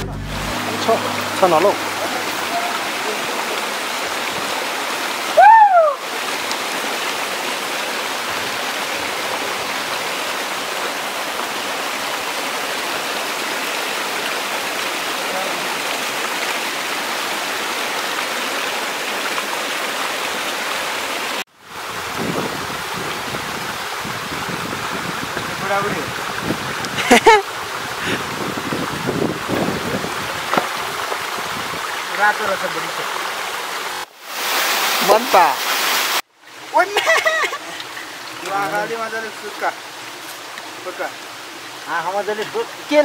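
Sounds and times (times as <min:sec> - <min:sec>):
stream rushing over rocks: 0:00.0 - 0:43.0
loud rising and falling call: 0:05.3 - 0:06.1.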